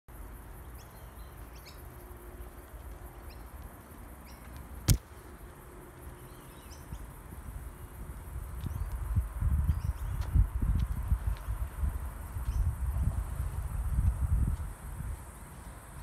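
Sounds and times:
wind rumble on microphone: 0:07.4 - 0:16.0.

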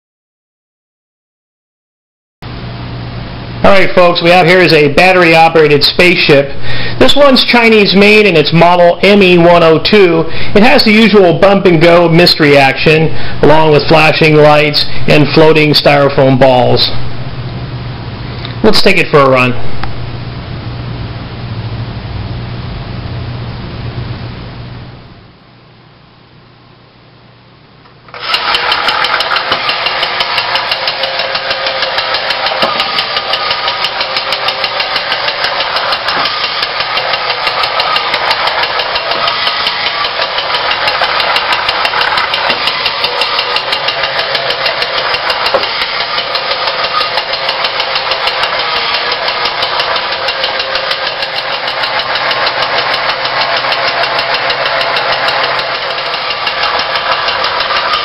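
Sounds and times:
toy motor whirring buzz: 0:28.1 - 0:58.0.

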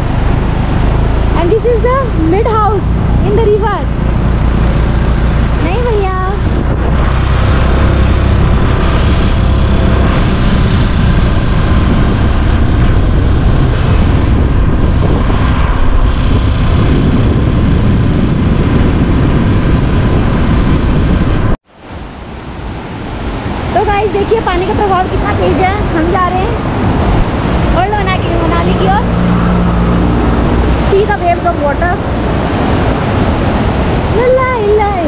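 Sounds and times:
wind buffeting microphone: 0:00.0 - 0:35.0
fast-flowing river rushing: 0:21.8 - 0:35.0.

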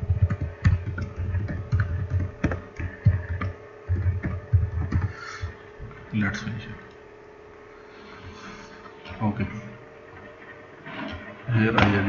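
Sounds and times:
typing on computer keyboard: 0:00.0 - 0:05.2.

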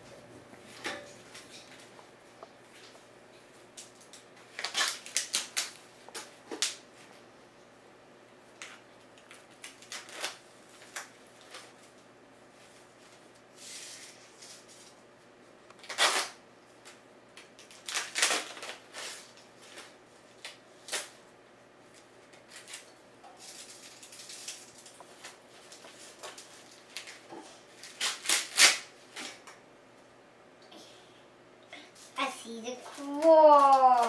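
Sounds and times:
corn husks ripping: 0:04.0 - 0:05.8, 0:08.6 - 0:11.7, 0:15.8 - 0:17.0, 0:17.6 - 0:21.2, 0:23.4 - 0:29.4, 0:32.9 - 0:34.0.

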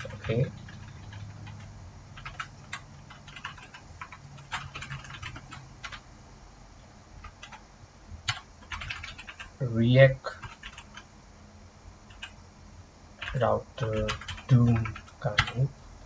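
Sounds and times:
keyboard typing: 0:00.0 - 0:06.0, 0:07.2 - 0:07.6, 0:08.3 - 0:09.5, 0:10.4 - 0:11.0, 0:12.1 - 0:12.4, 0:13.2 - 0:15.6.

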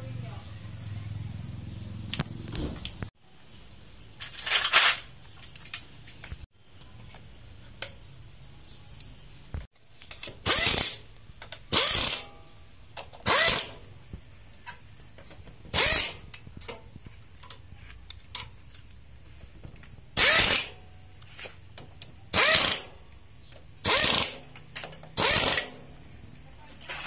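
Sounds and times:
cordless screwdriver whirring: 0:11.7 - 0:12.3, 0:13.2 - 0:13.8, 0:15.7 - 0:16.3, 0:20.2 - 0:20.7, 0:22.4 - 0:22.9, 0:23.8 - 0:25.7
small metal clicks: 0:14.6 - 0:25.9.

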